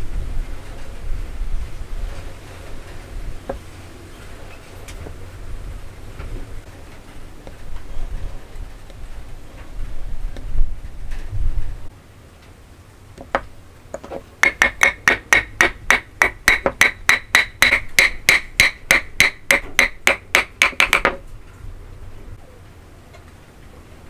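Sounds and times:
hammer striking wooden joint: 13.2s - 21.2s.

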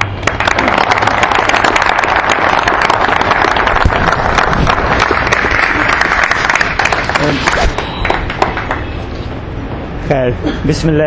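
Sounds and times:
crowd applauding: 0.0s - 8.9s.

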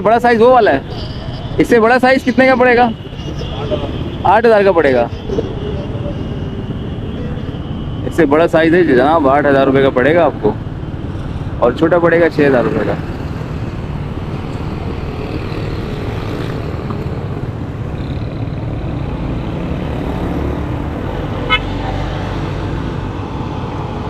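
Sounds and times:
motorcycle engine and road rumble: 0.0s - 24.0s
vehicle horn toot: 0.8s - 8.2s, 21.4s - 21.8s.

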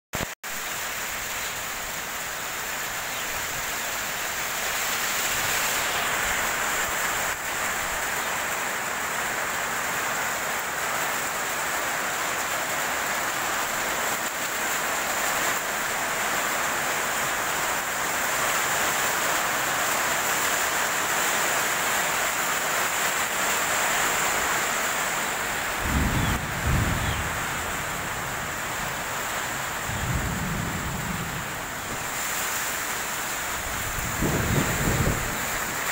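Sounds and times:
steady rain in gusty wind: 0.2s - 35.9s
low rumbles: 25.6s - 32.2s.

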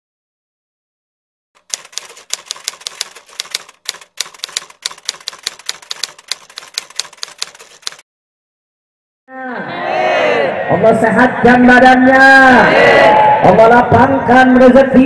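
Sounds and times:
typewriter key clicks: 1.6s - 8.0s.

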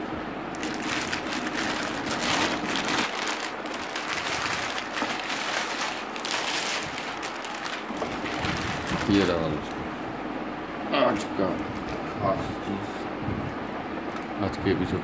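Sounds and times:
plastic bag crinkling: 0.5s - 9.6s.

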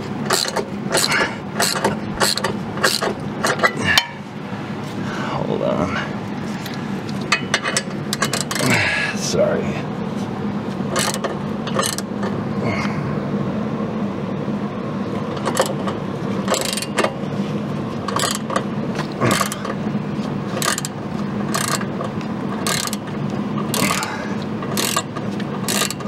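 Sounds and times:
ratchet wrench clicking: 0.3s - 3.7s, 7.3s - 8.7s, 11.0s - 12.3s, 15.3s - 17.2s, 18.1s - 18.6s, 19.3s - 19.8s, 20.6s - 26.0s.

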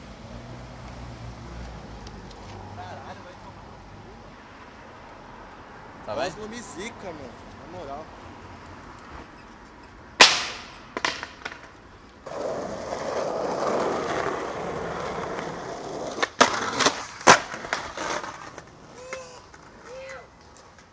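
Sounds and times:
skateboard clacks: 10.2s - 20.9s
skateboard cracks: 10.2s - 20.9s
skateboard wheels rolling: 10.2s - 20.9s.

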